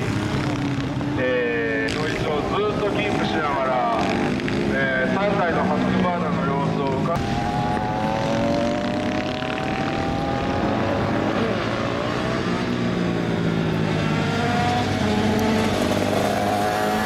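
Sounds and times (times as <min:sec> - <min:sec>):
racing motorcycle engines passing: 0:00.0 - 0:17.0.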